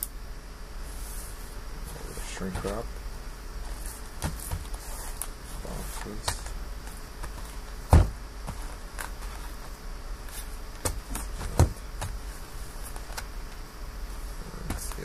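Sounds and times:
low steady hum: 0.0s - 15.0s
cardboard boxes knocking on table: 7.9s - 8.6s, 10.8s - 12.2s.

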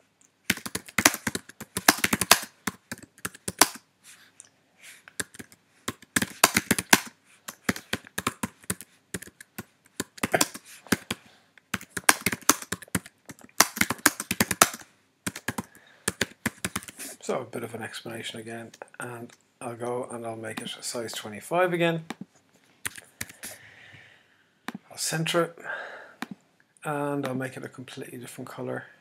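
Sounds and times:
typing on computer keyboard: 0.5s - 3.8s, 5.2s - 17.0s.

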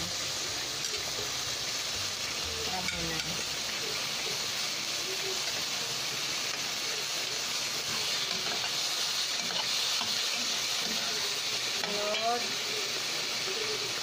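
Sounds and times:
vegetables sizzling in hot oil: 0.0s - 14.0s
metal spatula stirring: 7.8s - 12.4s.

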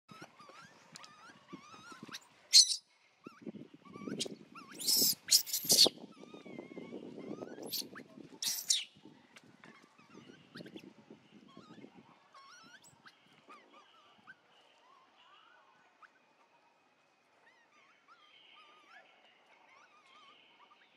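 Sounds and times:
baby monkey screaming: 0.1s - 8.9s, 11.5s - 14.0s.

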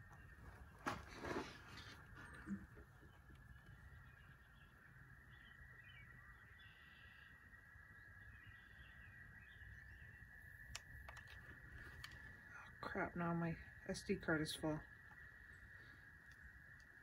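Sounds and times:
faint bird calls: 1.6s - 12.8s.

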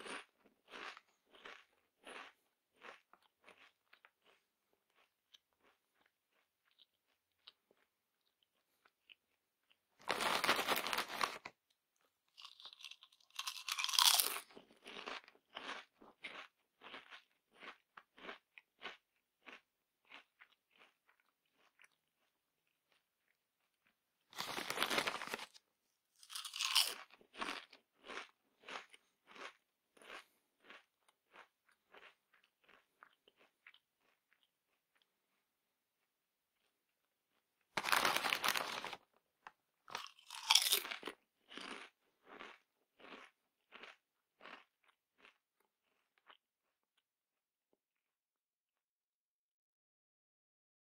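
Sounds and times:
crunchy chewing: 0.0s - 25.6s, 26.2s - 35.4s, 36.6s - 47.0s
chips crackling: 10.0s - 11.5s, 12.4s - 15.0s, 24.3s - 25.6s, 26.2s - 27.6s, 37.8s - 39.0s, 39.9s - 42.4s.

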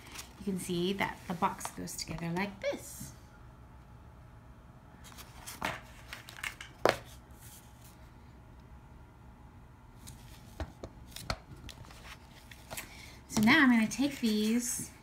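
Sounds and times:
paper rustling: 5.0s - 8.0s, 10.0s - 12.9s.

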